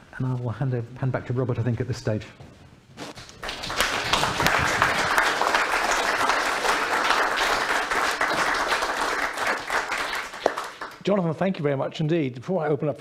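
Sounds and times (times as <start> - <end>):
audience applauding: 3.2 - 11.1.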